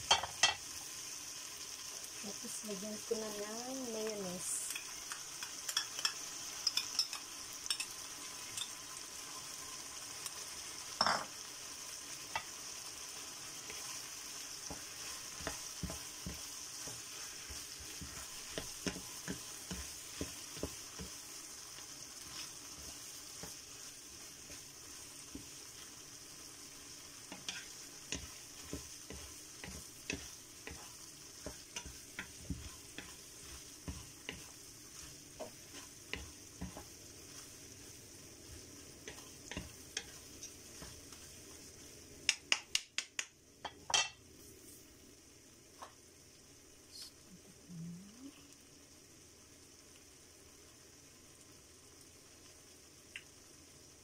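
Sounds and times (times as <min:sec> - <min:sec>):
meat sizzling in a pan: 0:00.0 - 0:54.0
wooden spatulas scraping a pan: 0:27.4 - 0:41.3.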